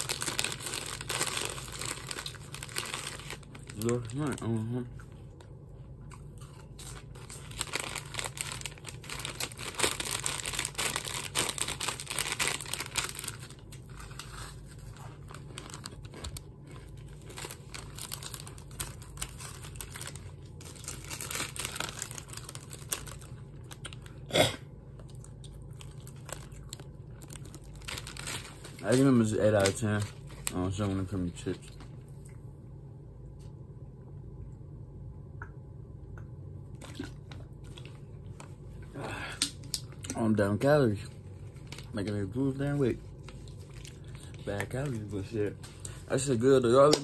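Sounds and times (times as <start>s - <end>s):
chip bag crinkling: 0.0s - 5.0s, 6.3s - 24.2s, 25.0s - 32.0s, 36.7s - 47.0s
crunching of chips being eaten: 0.0s - 24.3s, 25.0s - 30.6s, 36.8s - 38.0s, 43.3s - 45.1s.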